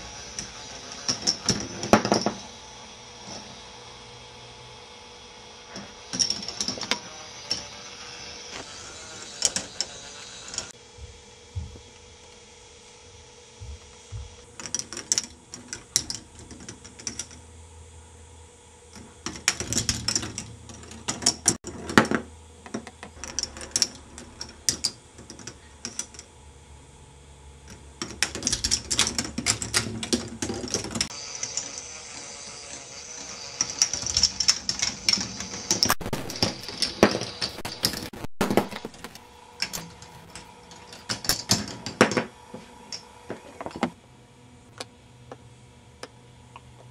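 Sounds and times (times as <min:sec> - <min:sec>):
faint motor hum: 0:00.0 - 0:46.9.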